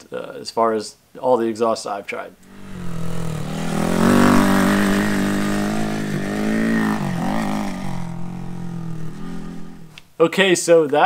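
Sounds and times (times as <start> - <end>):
motorcycle engine revving: 2.4 - 10.0.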